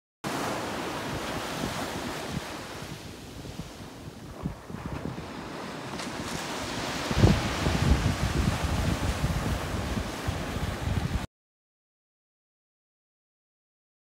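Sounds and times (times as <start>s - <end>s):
ocean surf breaking on beach: 0.3s - 11.3s
wind buffeting microphone: 0.6s - 11.3s.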